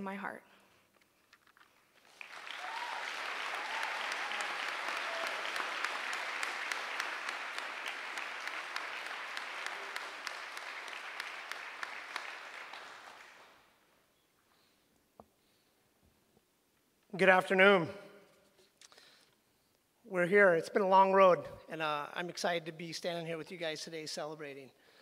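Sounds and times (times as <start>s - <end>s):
audience applauding: 2.0s - 13.7s.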